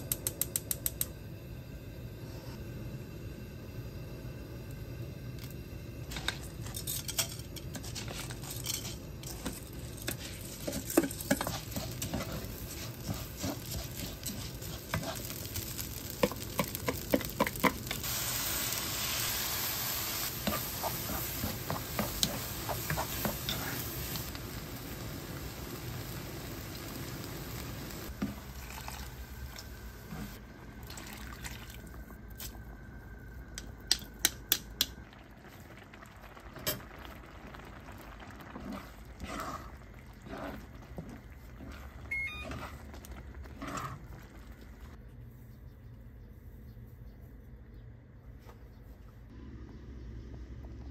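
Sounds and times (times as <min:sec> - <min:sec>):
rice and vegetables frying in oil: 0:05.4 - 0:45.0
broth pouring into hot pan: 0:09.1 - 0:29.7, 0:30.8 - 0:32.0
wooden spoon knocking on a wok: 0:16.1 - 0:18.0.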